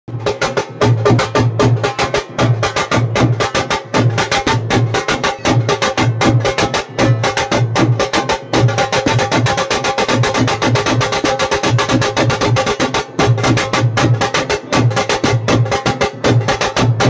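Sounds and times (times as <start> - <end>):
deep drum beat: 0.1 - 17.0
rapid sharp drum strikes: 0.1 - 17.0.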